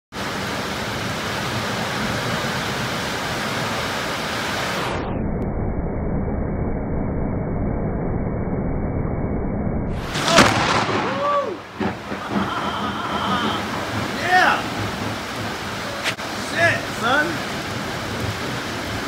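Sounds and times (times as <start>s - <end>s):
heavy rain pouring: 0.1s - 5.1s, 10.0s - 19.0s.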